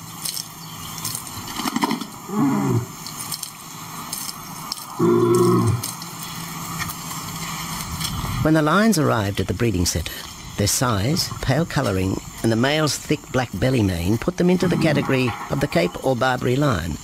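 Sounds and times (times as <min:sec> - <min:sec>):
lion calling: 0:02.3 - 0:03.0, 0:05.0 - 0:06.0.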